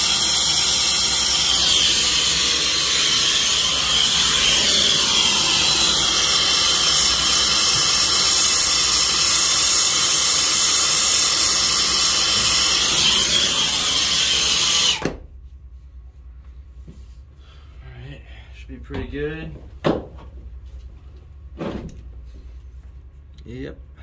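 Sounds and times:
torch flame hissing: 0.0 - 15.0.

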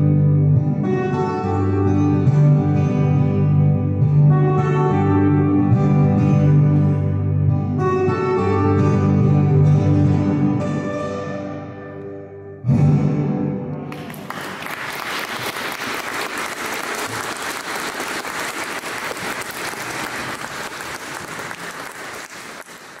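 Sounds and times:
audience applauding: 13.9 - 23.0.

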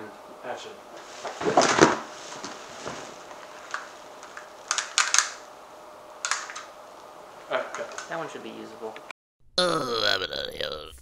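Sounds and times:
thumps on couch cushions: 1.0 - 3.3
fabric rustle: 1.0 - 5.0
costume props rattling: 1.0 - 5.4, 6.2 - 6.7.

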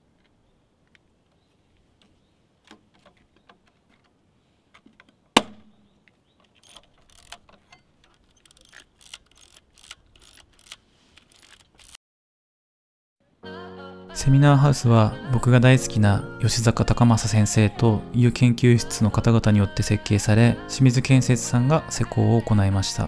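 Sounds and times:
film winding clicks: 6.5 - 12.0.

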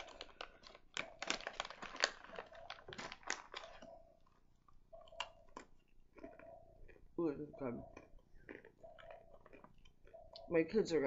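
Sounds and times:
plastic packet crinkling: 0.0 - 6.4
chewing crunchy snack: 0.0 - 10.5.

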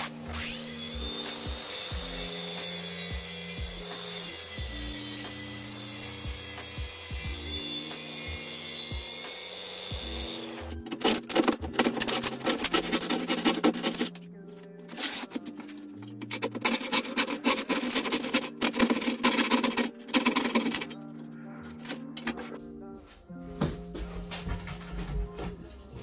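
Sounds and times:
handsaw cutting plywood: 0.0 - 14.1, 14.9 - 15.6, 16.2 - 21.0.

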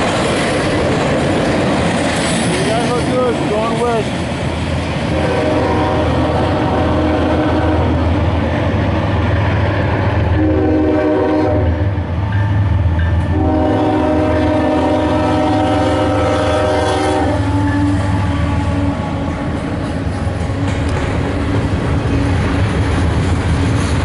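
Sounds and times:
train rumble: 0.0 - 24.0
locomotive air horn: 5.1 - 8.0, 10.4 - 12.0, 13.3 - 19.4.

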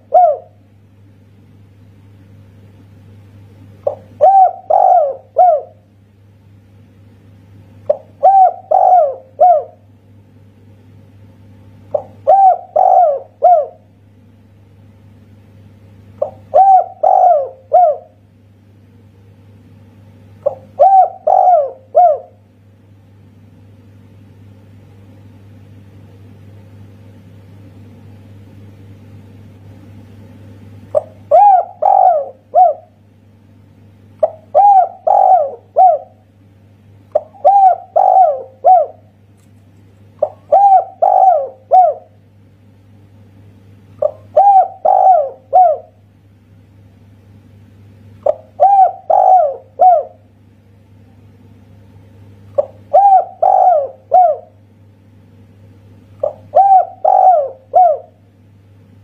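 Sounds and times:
dove cooing: 0.0 - 0.6, 3.8 - 5.9, 7.9 - 9.9, 11.9 - 13.9, 16.2 - 18.2, 20.4 - 22.4, 30.9 - 33.0, 34.2 - 36.3, 37.1 - 39.1, 40.2 - 42.2, 44.0 - 46.0, 48.2 - 50.3, 52.5 - 54.6, 56.2 - 58.2
faint low hum: 0.0 - 59.0.

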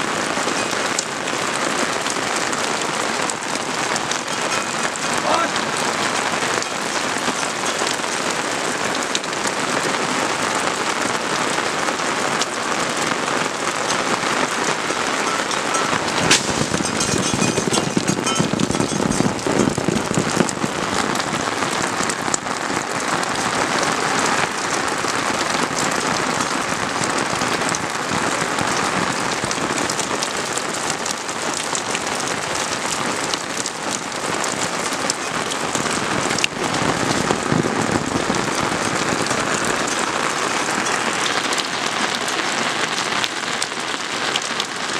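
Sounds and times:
steady rain hiss: 0.0 - 44.9.

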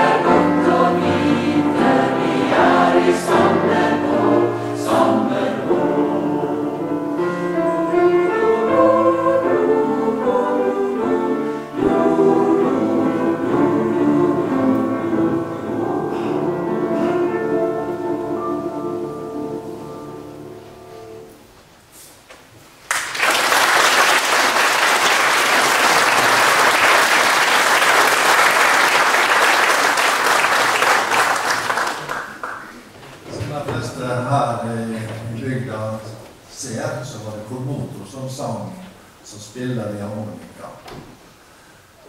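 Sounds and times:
choir and piano holding chord: 0.0 - 21.5
audience applause: 22.9 - 32.9.

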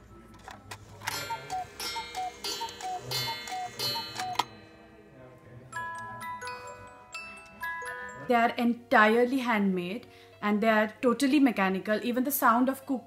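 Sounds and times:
cuckoo clock call: 1.0 - 4.8
music box tune: 1.0 - 5.0, 5.7 - 8.7.

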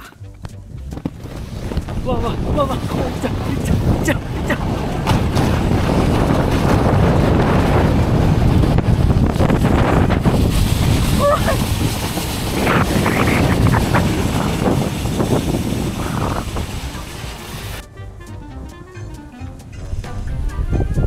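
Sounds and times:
wind buffeting microphone: 0.7 - 17.8, 19.6 - 21.0
snow tube hissing on snow: 1.2 - 17.8
person's voice: 2.0 - 4.6.

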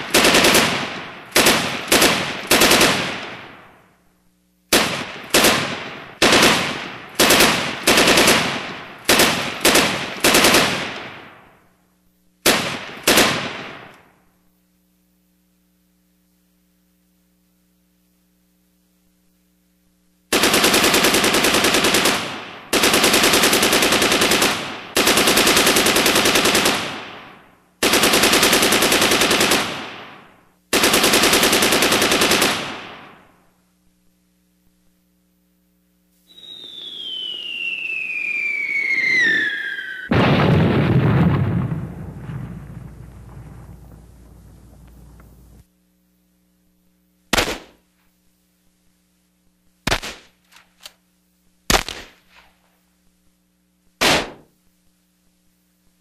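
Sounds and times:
single gunshots: 0.0 - 3.7, 4.7 - 11.4, 12.4 - 14.0, 47.3 - 47.8, 49.9 - 50.4, 51.7 - 52.5, 54.0 - 54.5
automatic machine-gun fire: 0.0 - 3.8, 4.7 - 11.6, 12.4 - 14.0, 20.3 - 33.4, 40.1 - 45.7, 47.3 - 47.8, 49.9 - 50.4, 51.7 - 52.3, 54.0 - 54.5.

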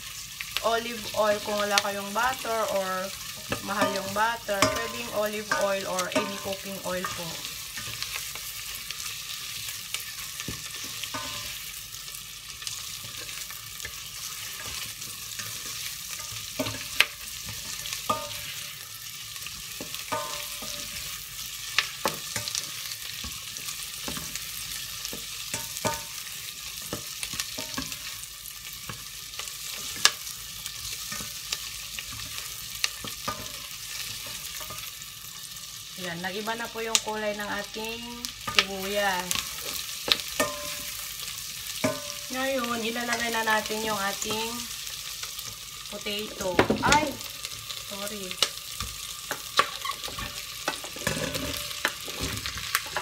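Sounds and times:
onion and garlic sizzling in butter: 0.0 - 53.0
spatula scraping a pan: 2.7 - 35.0, 49.3 - 53.0.

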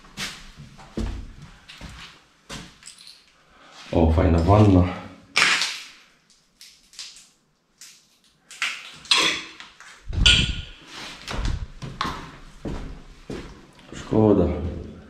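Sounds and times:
footsteps on gritty tiled floor: 9.8 - 14.8.

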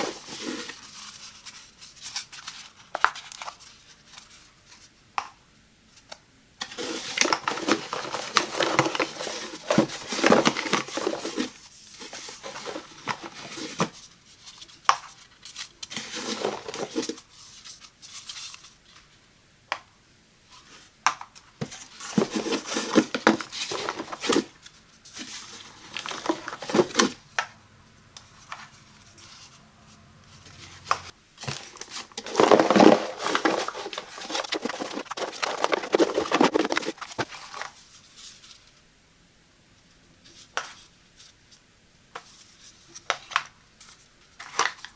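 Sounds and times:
pods rattling in cardboard box: 6.7 - 14.0, 15.9 - 17.2, 21.7 - 24.6, 25.2 - 27.2, 31.4 - 37.8.

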